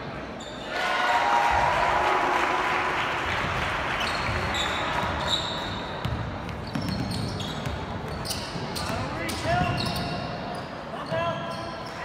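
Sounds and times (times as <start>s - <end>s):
large hall background noise: 0.0s - 12.0s
sneakers squeaking on court: 4.0s - 12.0s
basketball dribbling: 6.0s - 10.0s.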